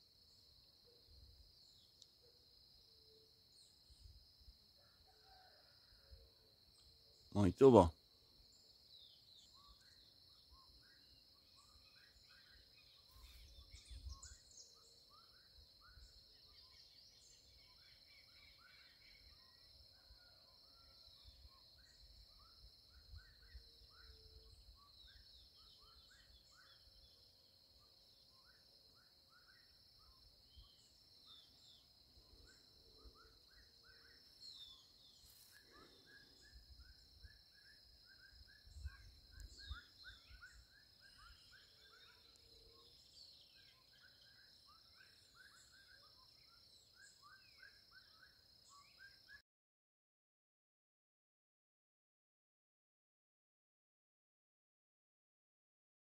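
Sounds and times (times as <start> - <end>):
insects trilling: 0.0 - 49.4
small birds chirping: 6.8 - 19.7, 21.1 - 49.4.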